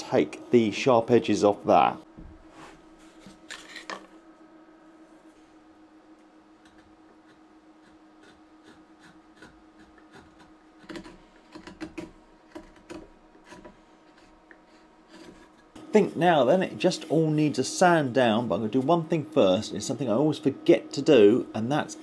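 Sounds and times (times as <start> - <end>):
faint steady hum: 0.0 - 22.0
knife cutting wood: 6.6 - 15.7.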